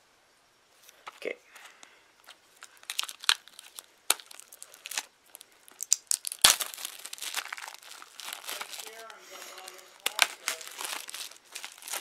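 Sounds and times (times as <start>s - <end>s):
plastic wrap crinkling and tearing: 2.2s - 12.0s.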